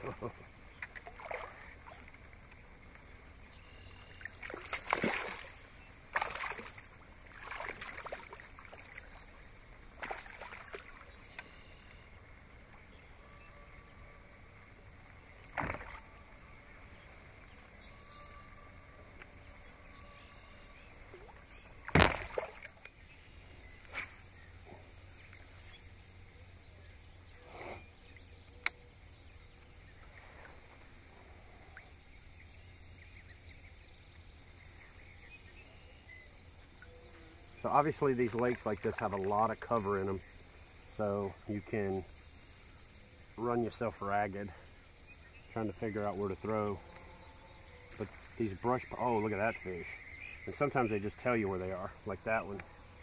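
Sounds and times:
water splashing and sloshing: 0.0s - 12.9s, 14.7s - 17.6s, 21.0s - 23.0s, 37.6s - 40.1s.

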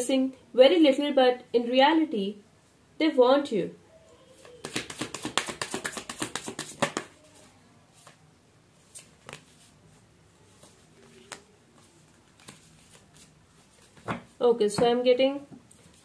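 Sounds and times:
cards being shuffled: 4.4s - 7.2s, 8.8s - 9.8s, 10.5s - 14.4s
cards tapped on table: 4.6s - 7.1s.

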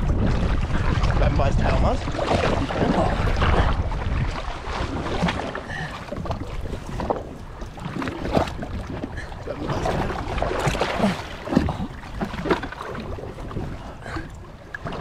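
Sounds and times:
water splashing against boat hull: 0.0s - 15.0s
wind rumbling on microphone: 0.0s - 15.0s.

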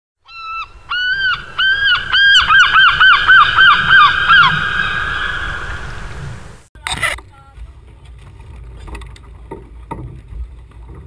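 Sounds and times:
steady rushing noise: 1.4s - 6.7s.

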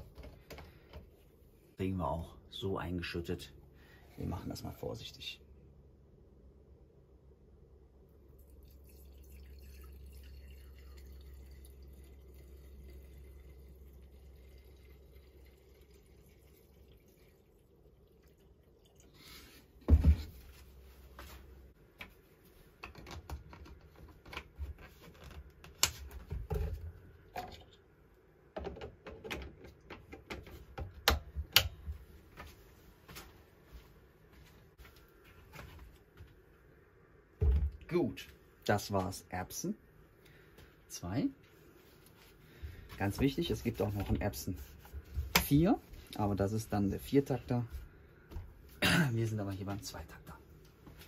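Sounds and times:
fuel trickling into tank: 8.3s - 19.8s
plastic clicks and knocks: 28.6s - 31.8s.

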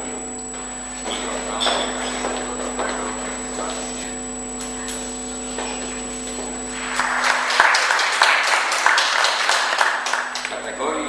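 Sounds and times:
audience applauding: 6.8s - 10.6s.

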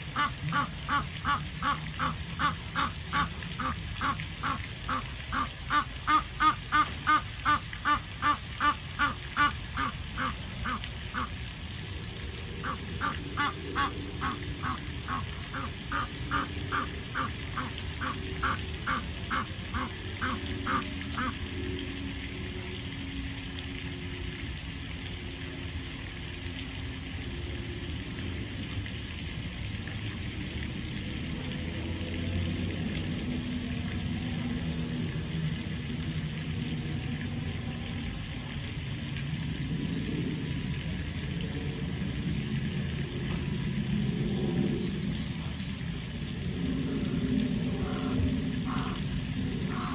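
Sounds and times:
steady low rumble: 0.0s - 49.9s
waterfowl quacking: 0.1s - 11.3s, 12.6s - 21.4s, 47.8s - 49.0s, 49.7s - 49.9s.

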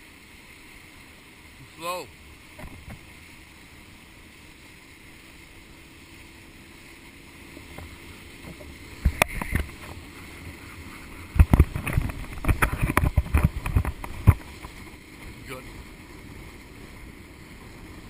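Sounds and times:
water rushing: 0.0s - 18.0s
water splashes hitting camera: 7.4s - 16.4s
wind buffeting camera: 7.5s - 18.0s.

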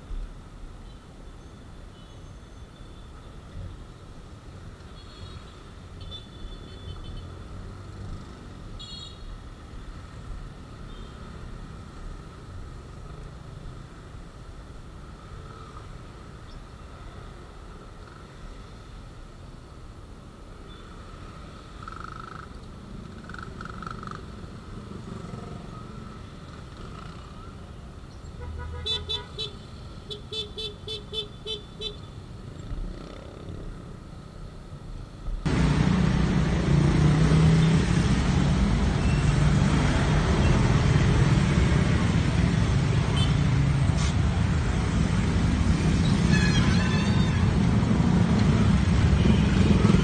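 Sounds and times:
road traffic noise: 0.0s - 50.0s.

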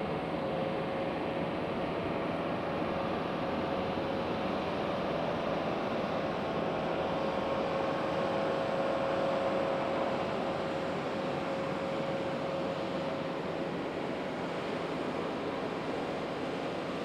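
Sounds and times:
aircraft radial engines droning: 0.0s - 17.0s.

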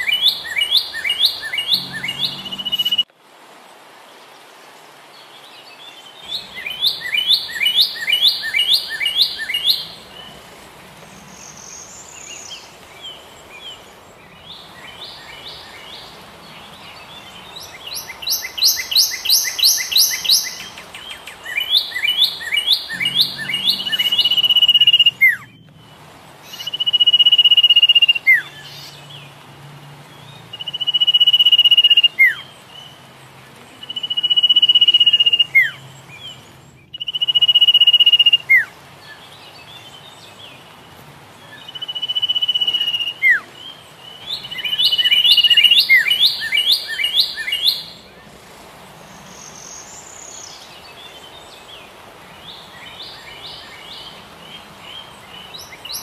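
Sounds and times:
fast bird chirps: 0.0s - 3.0s, 6.2s - 29.0s, 44.1s - 48.1s
soft bird calls: 0.0s - 3.1s, 4.2s - 29.5s, 30.1s - 56.0s.

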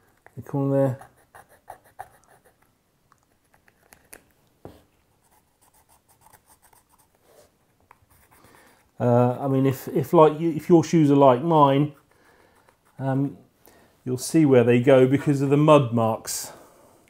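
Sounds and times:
felt-tip pen scratching: 0.0s - 2.6s, 5.2s - 7.2s, 11.8s - 13.0s.

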